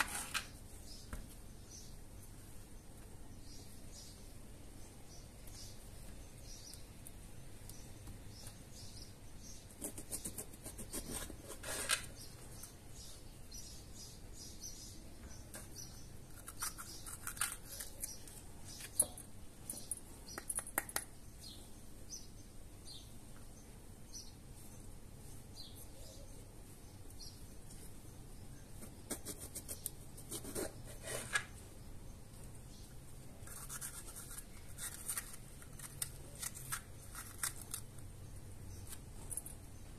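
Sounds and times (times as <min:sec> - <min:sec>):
bell pepper core torn out: 0:16.3 - 0:18.2, 0:34.8 - 0:38.0.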